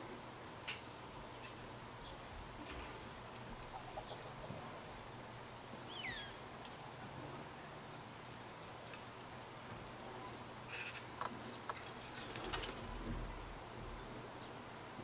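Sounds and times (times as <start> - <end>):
small songbirds chirping: 1.2 - 2.3, 3.0 - 4.6, 5.6 - 7.0.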